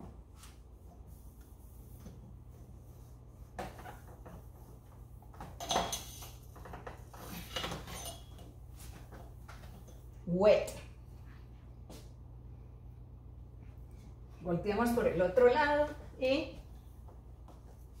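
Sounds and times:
low hum: 0:08.0 - 0:18.0.

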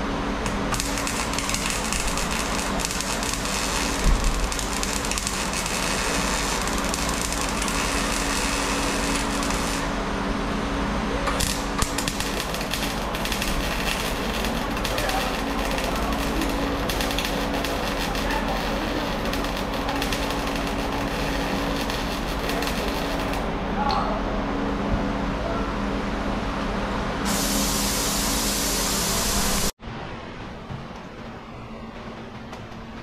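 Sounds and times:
welder arc crackling: 0:00.4 - 0:10.0, 0:11.3 - 0:23.6, 0:27.3 - 0:29.8.

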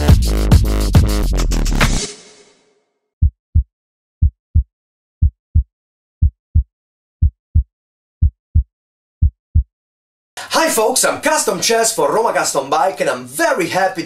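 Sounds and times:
heartbeat thumps: 0:03.2 - 0:09.7.

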